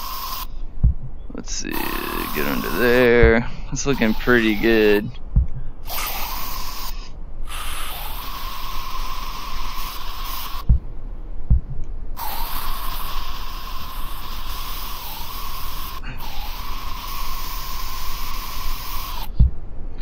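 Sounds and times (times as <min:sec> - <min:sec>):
spray-like hiss with tone: 0:00.0 - 0:00.6, 0:01.7 - 0:05.1, 0:05.8 - 0:10.7, 0:12.2 - 0:19.4
soft low thumps: 0:00.5 - 0:05.9, 0:10.6 - 0:12.2, 0:19.3 - 0:20.0.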